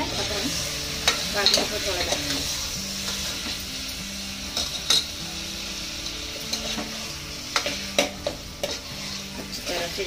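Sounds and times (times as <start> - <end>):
meat sizzling in a pot: 0.0 - 10.0
steel spoon scraping pot: 6.4 - 9.7.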